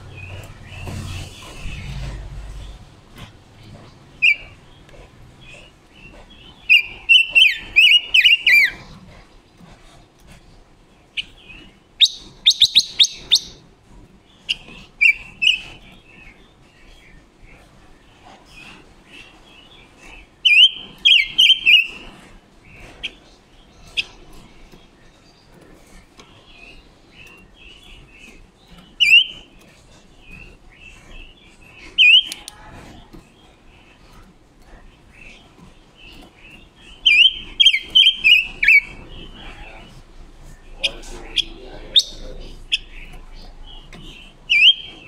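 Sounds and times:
bird whistling song: 4.2s - 4.6s, 6.5s - 8.8s, 11.2s - 13.6s, 14.5s - 15.9s, 20.4s - 22.0s, 28.8s - 29.5s, 30.3s - 32.5s, 36.8s - 39.8s, 40.8s - 45.0s
sharp bird chirps: 12.0s - 13.6s, 44.5s - 45.0s.

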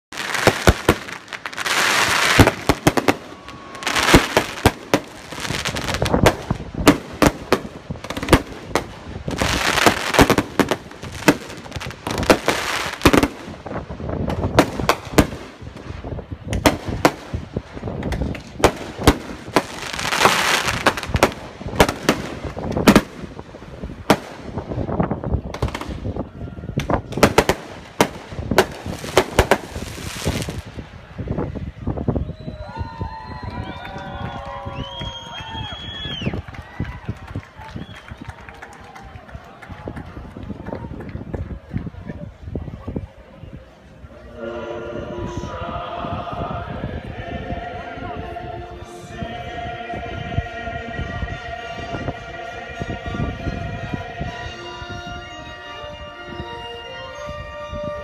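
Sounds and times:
fireworks hissing crackle: 0.1s - 26.1s, 27.3s - 31.0s
fireworks bangs and pops: 0.1s - 26.2s, 26.8s - 30.8s.

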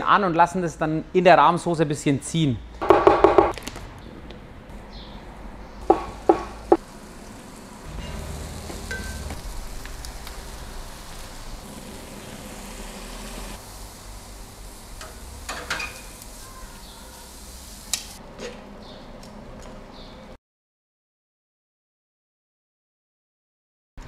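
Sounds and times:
food sizzling in a pan: 5.8s - 18.2s.

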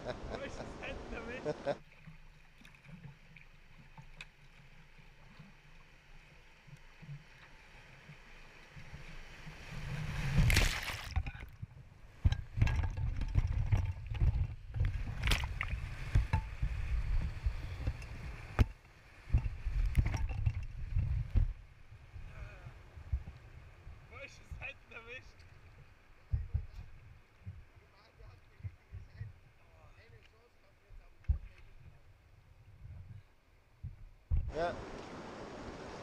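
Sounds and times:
water slapping against hull: 9.6s - 11.6s
loud splash: 10.2s - 11.2s
rushing churning water: 34.5s - 36.0s
water flowing: 34.5s - 36.0s.

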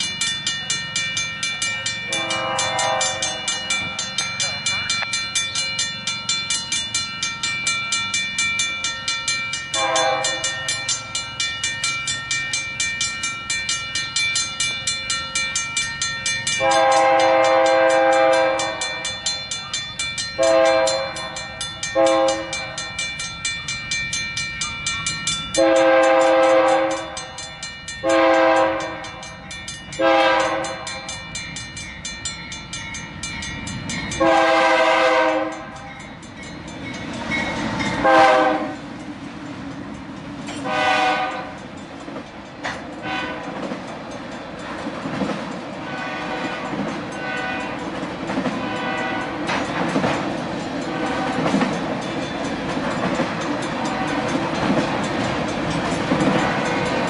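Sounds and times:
railroad crossing bell ringing: 0.0s - 57.0s
locomotive horn blasts: 2.1s - 3.5s, 9.8s - 10.6s, 16.6s - 19.1s, 20.4s - 21.4s, 22.0s - 22.7s, 25.6s - 27.4s, 28.0s - 29.2s, 30.0s - 31.0s, 34.2s - 35.8s, 38.0s - 38.8s, 40.6s - 41.6s, 43.0s - 43.6s, 45.8s - 47.8s, 48.6s - 49.4s.

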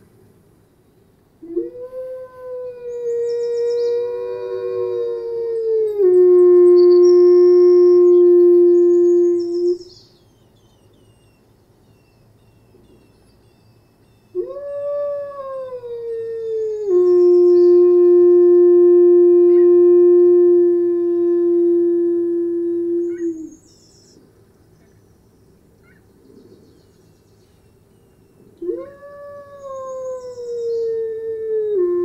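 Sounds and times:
wolf howling: 1.4s - 9.8s, 14.3s - 23.5s, 28.6s - 32.0s
small birds chirping faintly: 2.0s - 18.2s, 22.8s - 31.8s.

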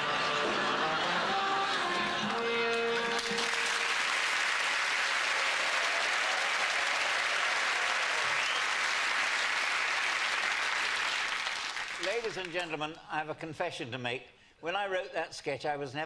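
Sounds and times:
studio audience applauding: 0.0s - 12.7s.

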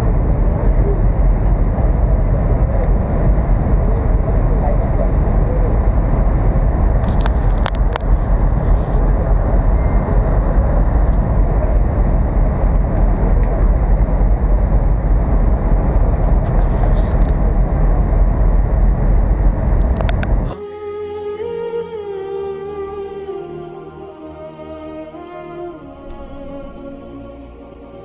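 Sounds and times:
wind on microphone: 0.0s - 20.6s
ferry engine drone: 0.0s - 28.0s.

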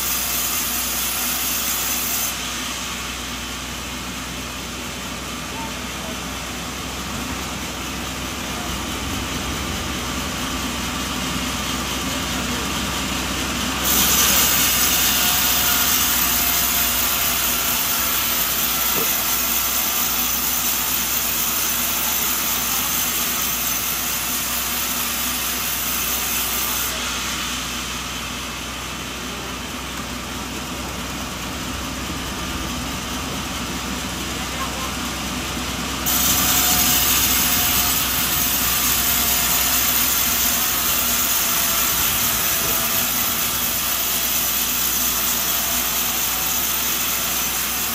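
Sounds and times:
saw blade cutting log: 0.0s - 9.7s, 10.7s - 47.9s
sawmill machinery running: 0.0s - 47.9s.

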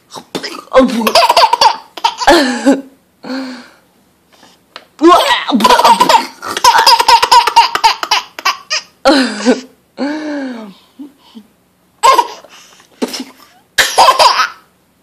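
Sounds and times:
baby laughing: 1.0s - 2.6s, 5.5s - 9.0s, 12.0s - 14.7s.

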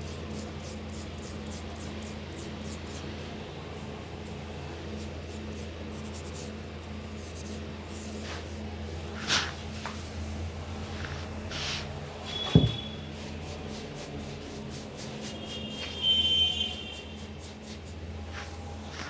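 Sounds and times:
comb scratching through wet hair: 7.3s - 8.6s, 9.2s - 10.1s, 10.9s - 12.4s, 13.1s - 19.0s.

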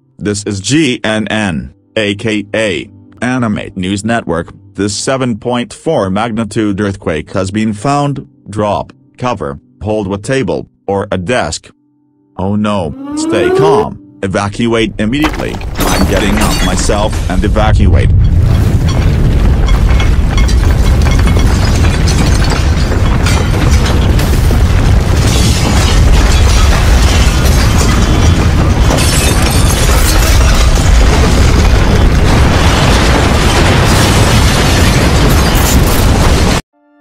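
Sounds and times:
deep earthquake rumble: 14.9s - 36.6s
crashing noise: 15.2s - 36.6s.

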